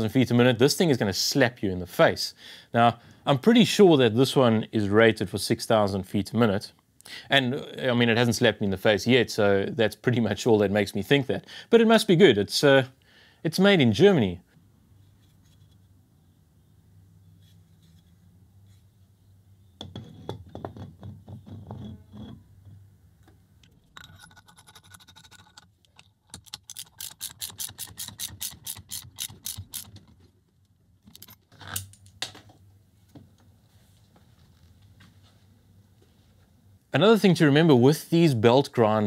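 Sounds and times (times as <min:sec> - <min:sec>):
metal wheel clunking and scraping: 0:19.8 - 0:22.8
ratchet wrench clicking: 0:24.8 - 0:29.9.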